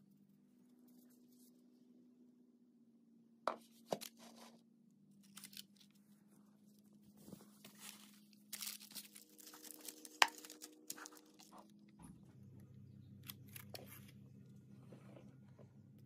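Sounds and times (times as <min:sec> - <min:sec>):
faint steady hum: 0:00.0 - 0:16.0
parchment paper crinkling: 0:05.2 - 0:11.8.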